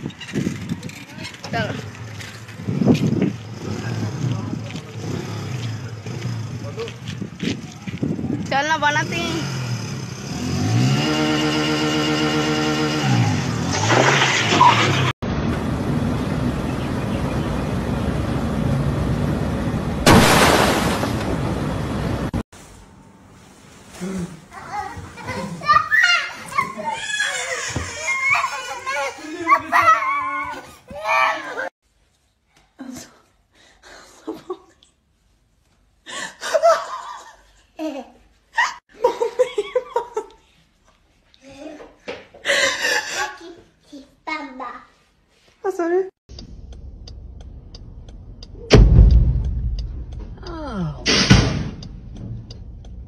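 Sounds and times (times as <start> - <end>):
road and traffic noise: 0.0 - 29.2, 43.1 - 53.0
motorcycle engine revving: 3.3 - 6.8, 8.8 - 15.1.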